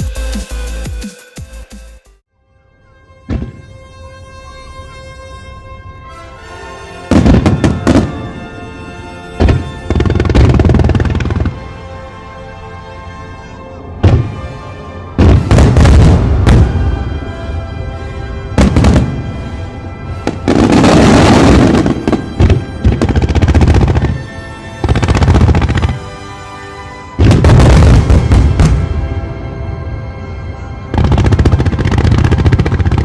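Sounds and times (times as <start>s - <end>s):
music playing: 0.0s - 33.0s
fireworks bursting: 7.1s - 8.3s, 9.4s - 11.6s, 18.6s - 19.3s, 20.2s - 26.1s, 27.2s - 29.1s, 30.9s - 33.0s.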